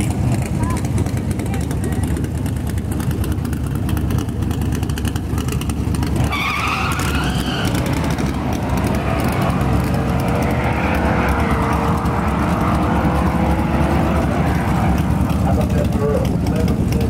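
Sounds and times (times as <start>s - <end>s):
truck engine running loudly: 0.0s - 17.0s
tyre squeal: 6.2s - 9.6s.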